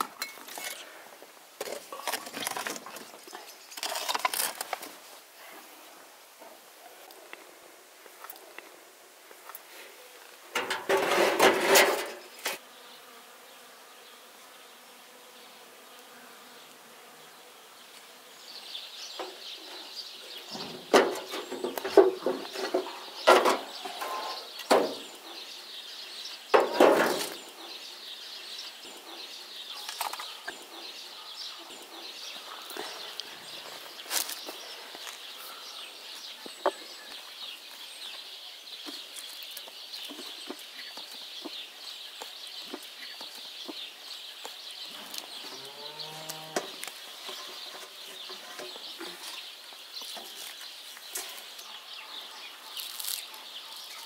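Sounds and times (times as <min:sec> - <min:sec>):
metal baking trays clattering: 0:10.6 - 0:12.2, 0:20.5 - 0:25.0
metal sheet clanking: 0:10.6 - 0:12.2, 0:20.5 - 0:25.0.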